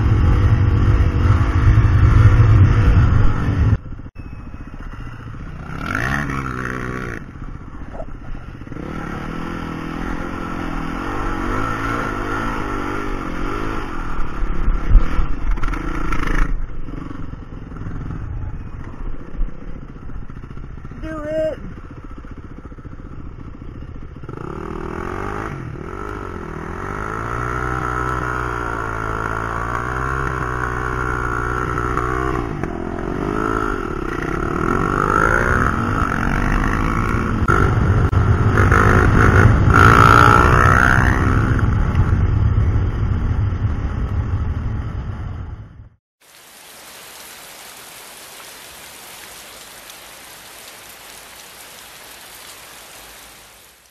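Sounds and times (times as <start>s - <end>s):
dirt bike engine revving: 5.4s - 7.7s, 8.5s - 14.2s, 22.4s - 42.2s
steady hiss: 46.2s - 53.9s.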